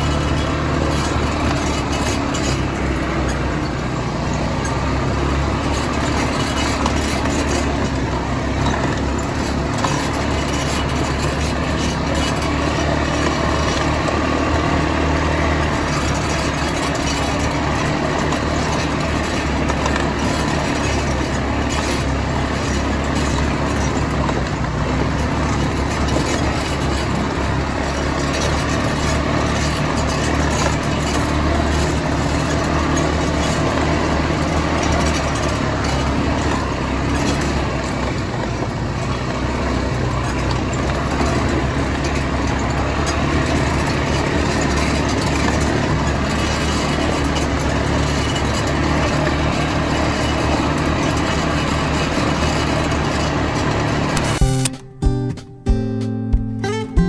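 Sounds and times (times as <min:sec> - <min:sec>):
quad bike engines running: 0:00.0 - 0:54.8.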